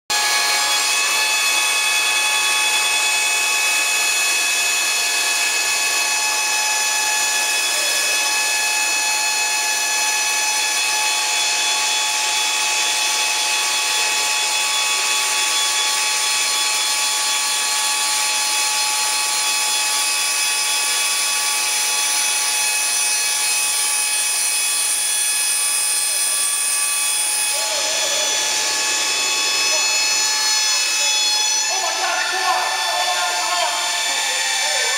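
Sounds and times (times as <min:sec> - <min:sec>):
machine whine: 0:00.1 - 0:34.9.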